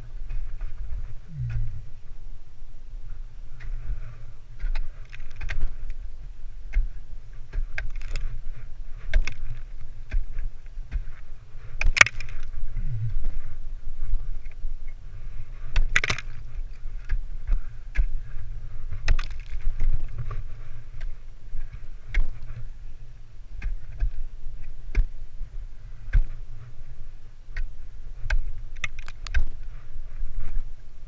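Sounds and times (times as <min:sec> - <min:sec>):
low rumble: 0:00.0 - 0:28.7
ice axe striking ice: 0:15.8 - 0:16.4, 0:19.1 - 0:19.9.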